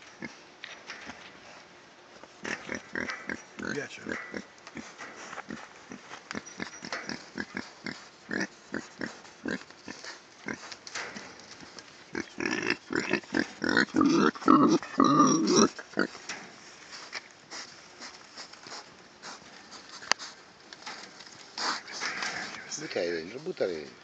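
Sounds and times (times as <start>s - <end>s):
young boars grunting: 2.4s - 10.7s, 12.1s - 16.2s.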